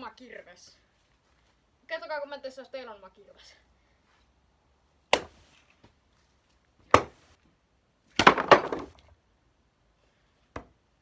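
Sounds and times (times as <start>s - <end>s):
axe chopping log: 5.1s - 5.5s, 6.8s - 7.3s, 8.2s - 8.9s
wood knocks clattering: 8.2s - 9.1s.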